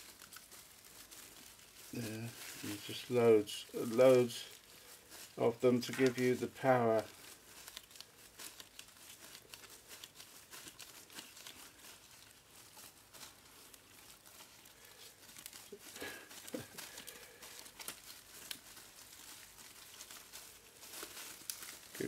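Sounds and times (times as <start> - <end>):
gloves crinkling: 0.0 - 22.0
thin foil layers peeling: 0.0 - 22.0.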